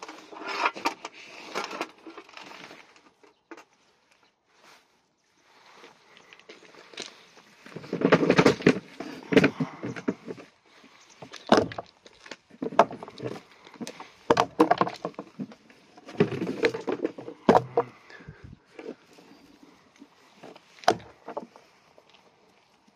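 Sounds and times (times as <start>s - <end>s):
sheep crunching feed pellets: 5.7s - 22.9s.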